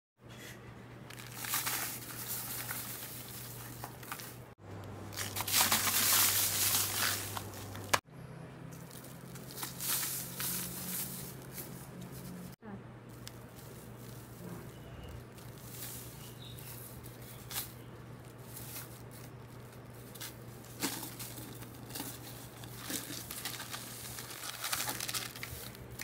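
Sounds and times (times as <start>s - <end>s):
sand pouring into a bucket: 5.2s - 7.3s
sand-cement cup crunching by hand: 5.2s - 7.9s, 8.8s - 11.8s.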